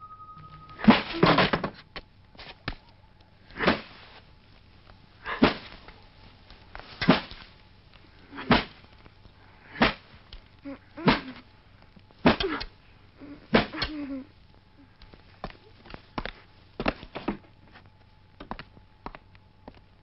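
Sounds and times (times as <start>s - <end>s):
sharp blows landing: 5.3s - 5.9s, 6.8s - 7.5s, 8.4s - 8.9s, 9.7s - 10.2s, 13.5s - 14.0s.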